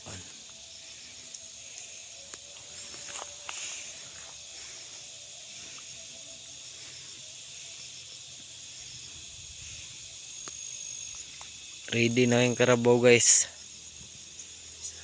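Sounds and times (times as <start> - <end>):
insect chorus: 0.0 - 15.0.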